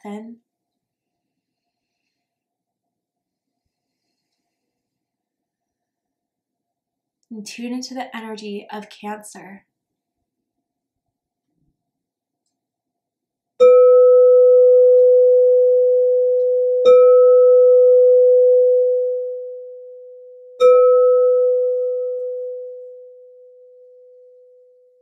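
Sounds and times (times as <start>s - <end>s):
crystal singing bowl ringing: 13.6s - 25.0s.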